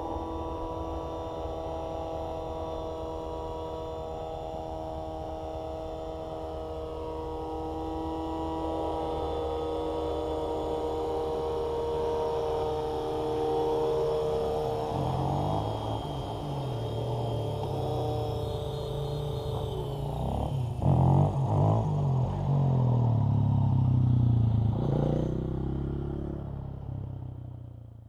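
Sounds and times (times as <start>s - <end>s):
rc helicopter motor whine: 0.0s - 23.2s.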